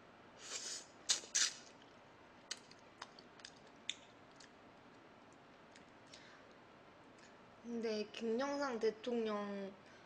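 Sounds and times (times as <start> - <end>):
sharp eating smack: 1.1 - 1.7.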